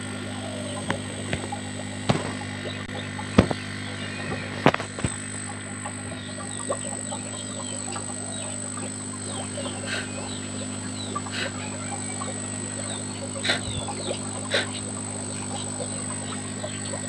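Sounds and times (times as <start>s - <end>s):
steady low hum: 0.0s - 17.0s
faint bird chirps: 5.8s - 17.0s.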